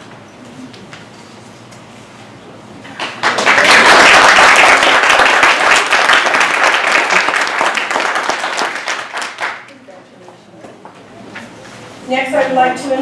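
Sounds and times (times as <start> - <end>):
audience applauding: 3.0 - 9.7.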